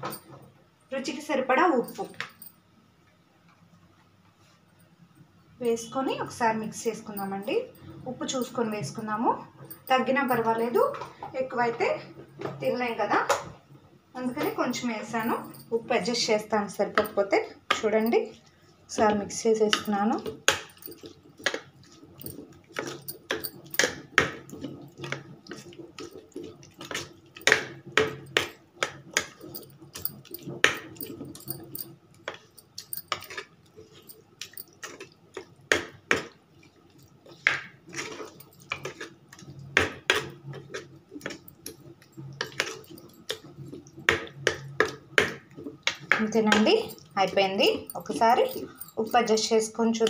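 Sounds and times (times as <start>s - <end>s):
spoon scraping a pan: 37.2s - 39.5s.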